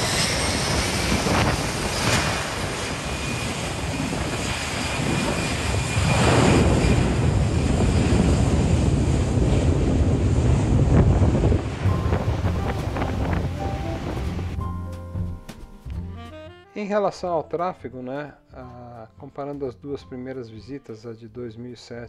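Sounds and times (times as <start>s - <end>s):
jet engines whining: 0.0s - 14.6s.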